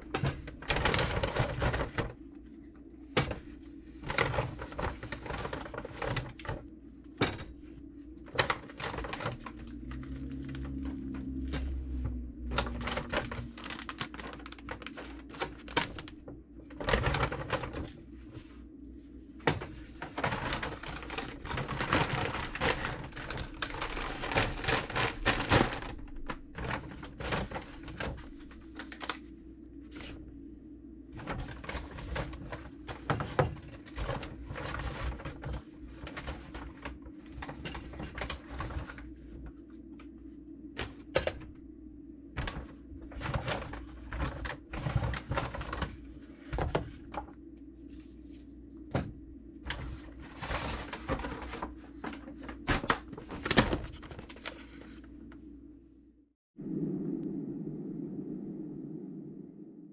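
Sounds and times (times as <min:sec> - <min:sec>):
low steady hum: 0:00.0 - 0:59.9
packaging rustling: 0:03.2 - 0:18.7, 0:19.3 - 0:30.2, 0:42.4 - 0:55.4.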